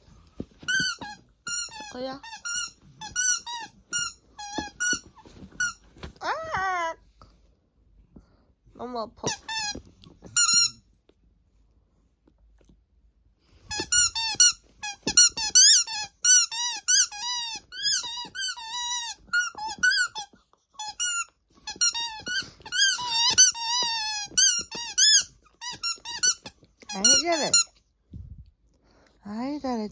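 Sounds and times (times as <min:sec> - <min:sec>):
squeaky toy squeaks: 0:00.6 - 0:05.8, 0:09.1 - 0:10.8, 0:13.7 - 0:27.8
dog chewing rubber toy: 0:13.7 - 0:27.8.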